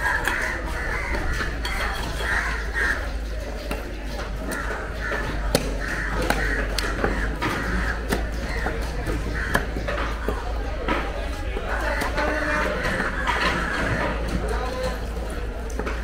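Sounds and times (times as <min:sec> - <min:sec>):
background noise: 0:00.0 - 0:16.0
cleaver chopping on wooden block: 0:03.6 - 0:10.4.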